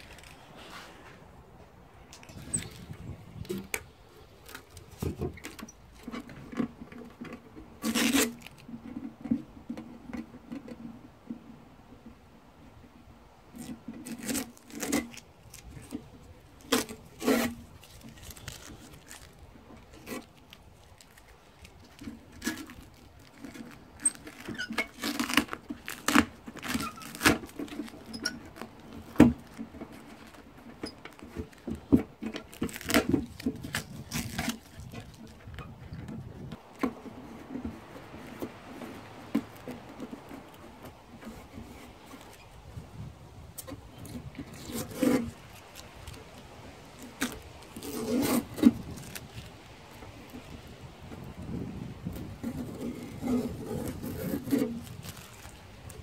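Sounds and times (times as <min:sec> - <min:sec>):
tape pulled and torn: 0:00.0 - 0:01.2, 0:02.0 - 0:10.8, 0:13.5 - 0:56.0
hands rustling: 0:00.0 - 0:05.6, 0:14.5 - 0:56.0.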